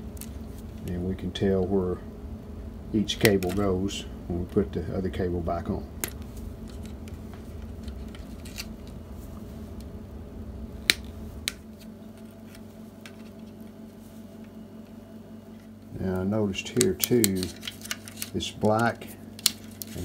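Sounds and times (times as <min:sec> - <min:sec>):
wire cutters clicking: 0:16.7 - 0:20.0.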